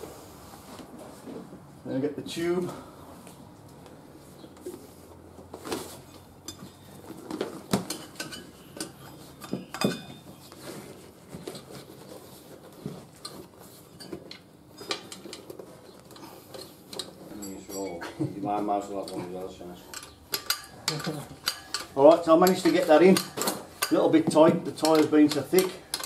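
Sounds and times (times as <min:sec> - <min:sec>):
knocks and clinks against wheel rim: 0:06.0 - 0:10.6, 0:12.8 - 0:18.2, 0:18.8 - 0:26.0.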